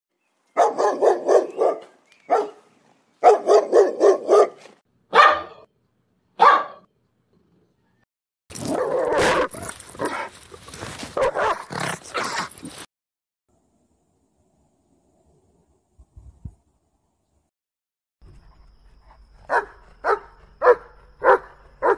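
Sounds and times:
dog barking: 0:00.6 - 0:02.6, 0:03.2 - 0:05.7, 0:06.4 - 0:06.9, 0:11.2 - 0:11.8, 0:19.5 - 0:21.9.

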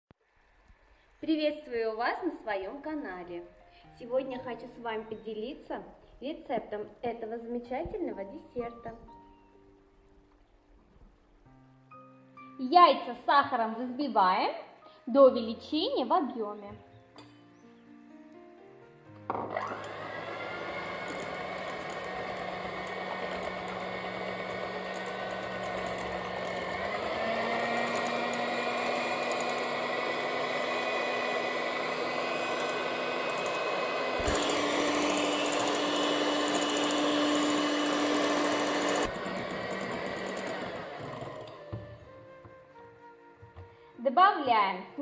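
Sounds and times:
electric hand mixer whining: 0:19.3 - 0:42.1.

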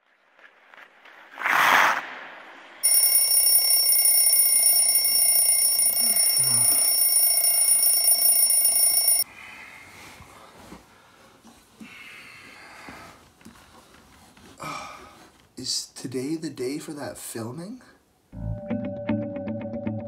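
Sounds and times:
alarm clock ringing: 0:02.8 - 0:09.3.

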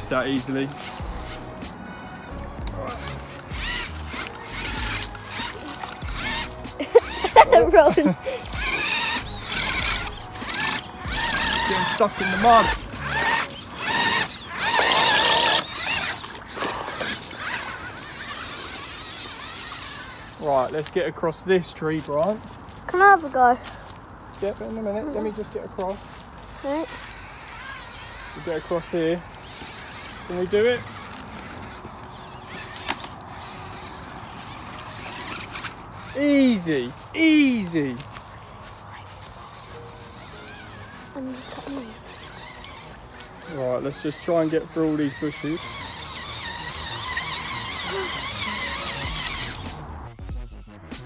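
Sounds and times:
electric motor whining: 0:00.0 - 0:23.4, 0:24.3 - 0:50.2
wheels churning in mud: 0:00.0 - 0:50.2.

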